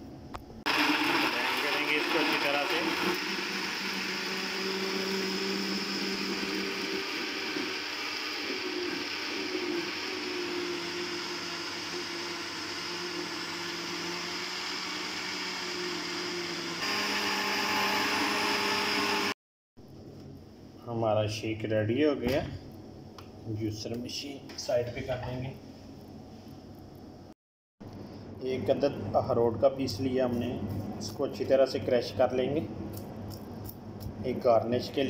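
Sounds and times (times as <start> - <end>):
blender motor running: 0.7 - 19.4.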